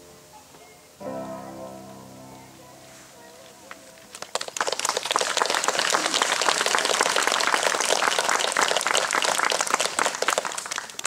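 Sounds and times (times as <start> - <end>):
audience applauding: 4.1 - 11.0.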